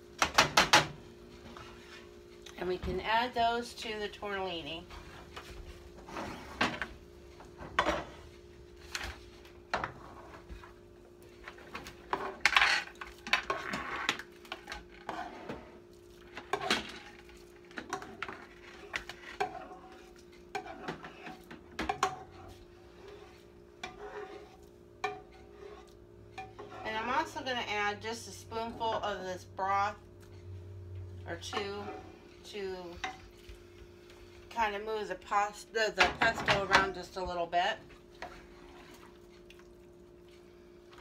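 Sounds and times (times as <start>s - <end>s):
utensil scraping and clinking on pans: 11.7s - 15.6s, 16.3s - 27.5s, 31.4s - 33.4s.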